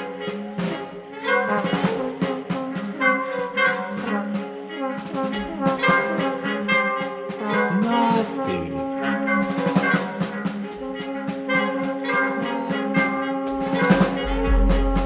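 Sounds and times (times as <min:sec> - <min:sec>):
drums and cymbals: 0:00.0 - 0:06.6, 0:09.7 - 0:15.0
saxophone: 0:00.0 - 0:15.0.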